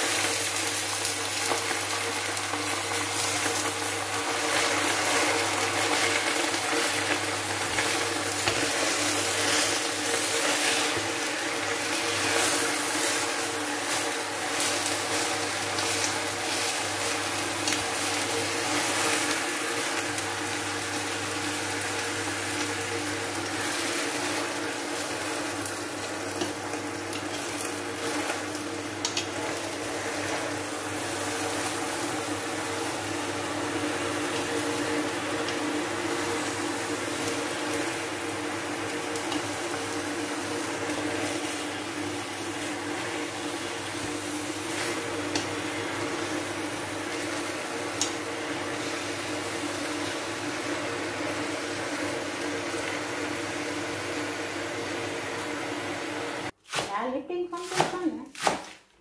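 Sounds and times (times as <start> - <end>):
pots cooking hiss and hum: 0.0 - 59.0.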